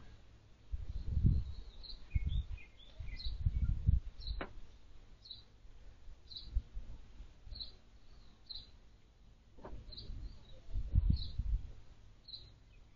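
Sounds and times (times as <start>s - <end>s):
small birds chirping: 0.9s - 4.5s, 5.2s - 5.6s, 6.2s - 6.6s, 7.4s - 11.6s, 12.2s - 12.9s.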